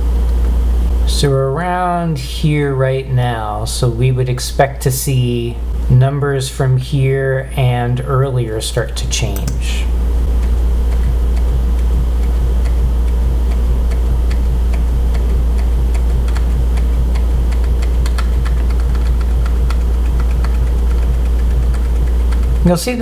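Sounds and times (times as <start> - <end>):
loud steady low hum: 0.0 - 23.0
keyboard keys clicking: 9.3 - 22.8.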